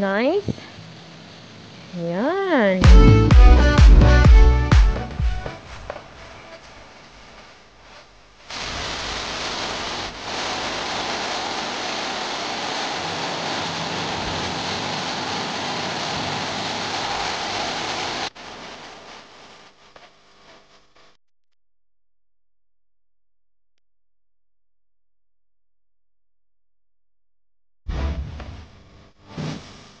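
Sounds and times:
water splashing over stone ledges: 8.5 - 18.3.

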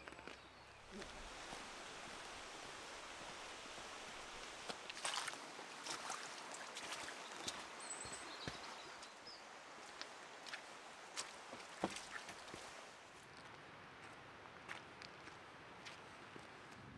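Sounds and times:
outdoor hiss: 0.7 - 5.8
footsteps on wet gravel: 3.3 - 9.2, 9.8 - 16.6.

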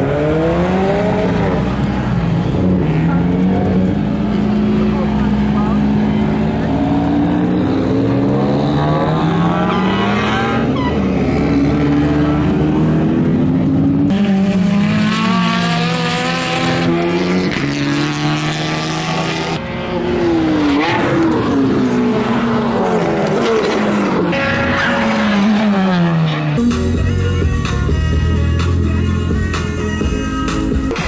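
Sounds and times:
car engines revving: 0.0 - 31.0
tyre squeal: 9.5 - 11.1.

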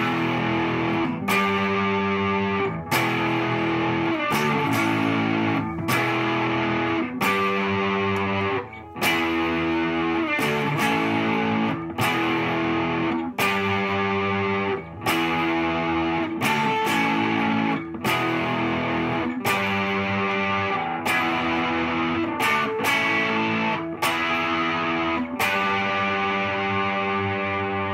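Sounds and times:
electric guitar chord riff: 0.0 - 27.9.

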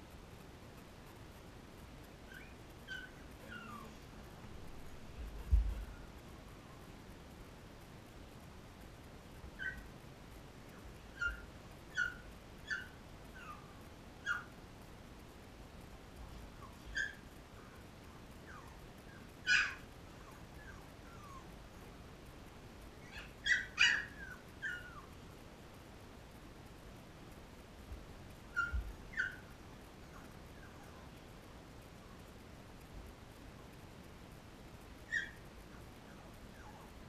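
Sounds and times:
puppies squeaking and whimpering: 2.3 - 3.9, 9.6 - 9.8, 11.2 - 13.6, 19.5 - 21.5, 23.0 - 25.1, 28.6 - 29.4, 35.1 - 35.4.

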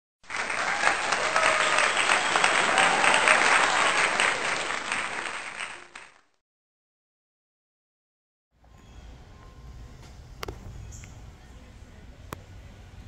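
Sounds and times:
crowd applauding: 0.2 - 6.4.

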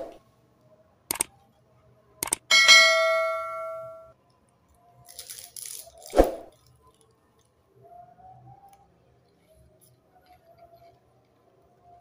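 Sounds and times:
bell-like ding: 2.5 - 4.1.

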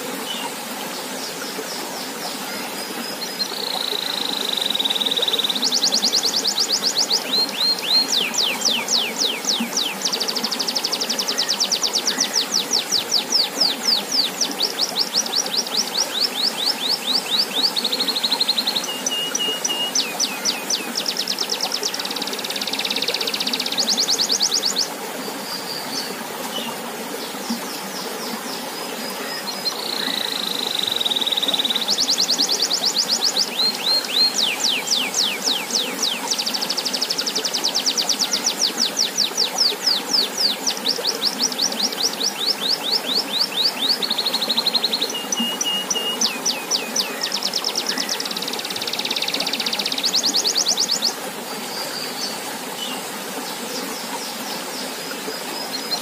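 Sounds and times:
fountain splashing into pond: 0.0 - 55.9
canary singing trills: 29.2 - 51.2.

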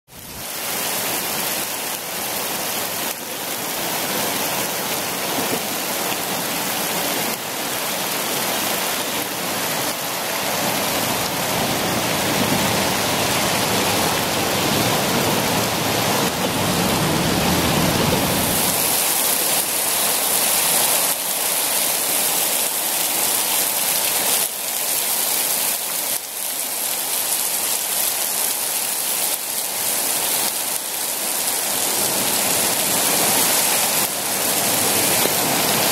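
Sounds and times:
traffic rushing under overpass: 11.2 - 18.9.

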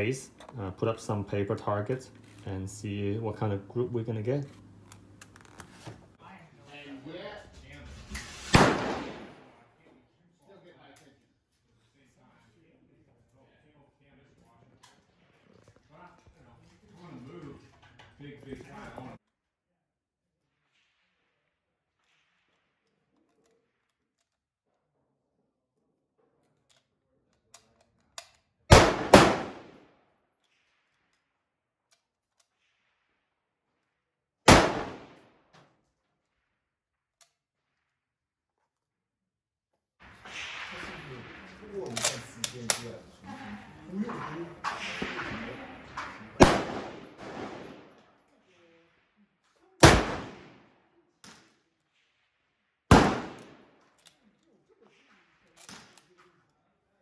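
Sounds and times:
rifle gunshots: 8.2 - 9.6, 28.7 - 29.8, 34.5 - 35.2, 40.0 - 48.1, 49.8 - 50.7, 52.9 - 53.7
rifle bolt clicks: 41.9 - 42.8.

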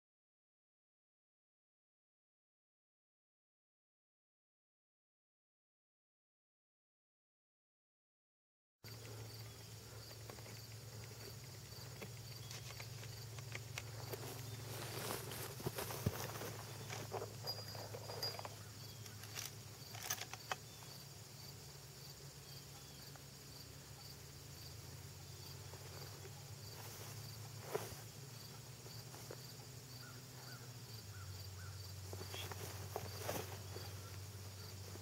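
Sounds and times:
insect chirping: 8.9 - 35.0
low steady hum: 8.9 - 35.0.

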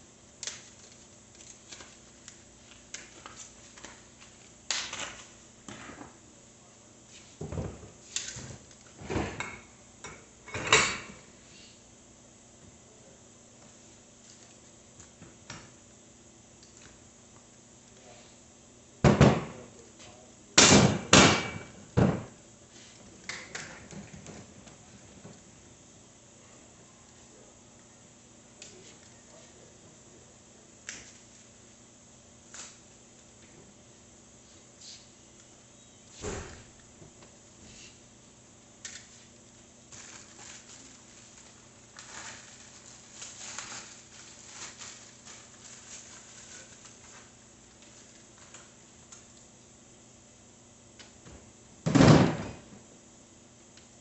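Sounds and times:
knocks and bangs on workbench: 19.0 - 19.6, 20.6 - 22.3, 51.9 - 52.7
plastic packaging crinkling: 39.9 - 48.8.

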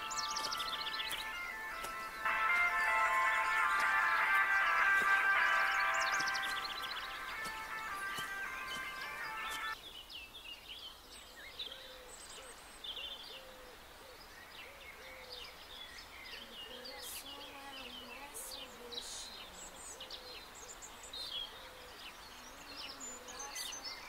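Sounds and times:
low hooting bird call: 0.0 - 9.7
birds chirping and calling: 0.0 - 9.8, 14.6 - 24.0.

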